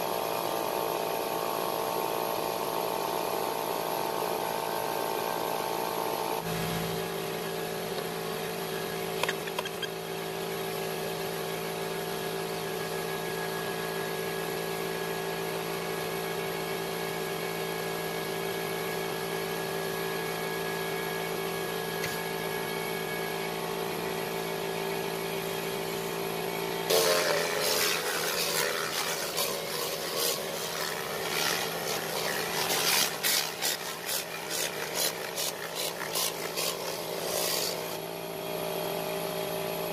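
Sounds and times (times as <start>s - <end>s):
electric motor humming: 23.6s - 38.1s
scrubbing strokes on fabric: 27.0s - 37.9s.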